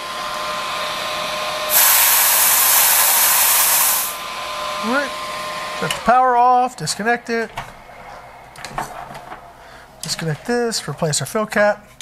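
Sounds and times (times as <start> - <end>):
compressor humming: 0.0 - 11.5
high-pressure air hiss: 1.7 - 4.2.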